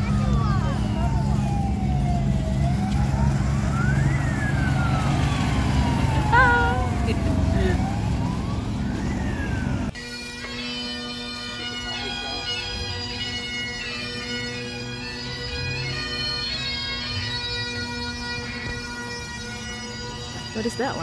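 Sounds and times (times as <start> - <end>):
siren wailing: 0.0 - 10.0
bagpipes playing: 0.0 - 21.0.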